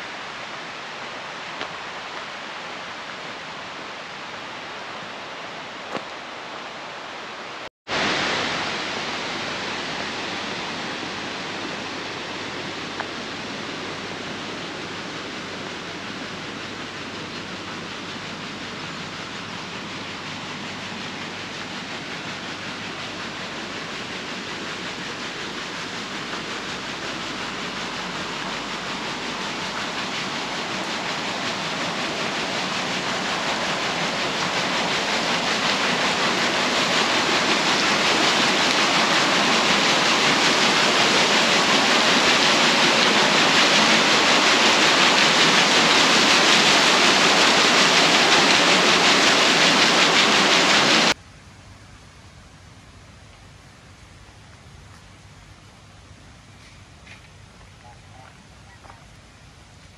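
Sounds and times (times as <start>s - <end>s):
waterfall roar: 0.0s - 51.2s.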